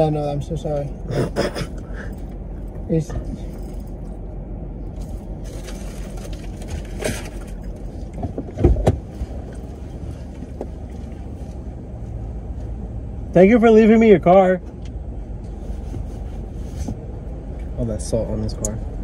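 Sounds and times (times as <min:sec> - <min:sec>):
car cabin rumble: 0:00.0 - 0:19.0
car door opening thump: 0:08.2 - 0:09.1.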